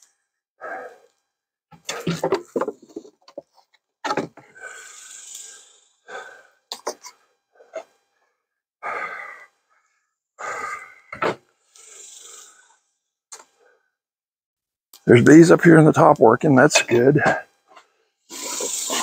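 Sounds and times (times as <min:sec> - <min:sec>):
heavy breathing: 0:00.6 - 0:01.2, 0:04.3 - 0:08.0, 0:08.8 - 0:14.0, 0:17.2 - 0:19.0.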